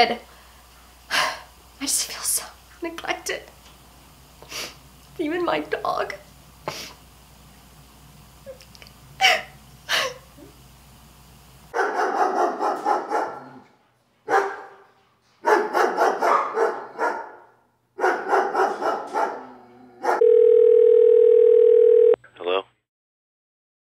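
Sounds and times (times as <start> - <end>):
small dog yapping: 11.8 - 13.5, 15.5 - 17.2.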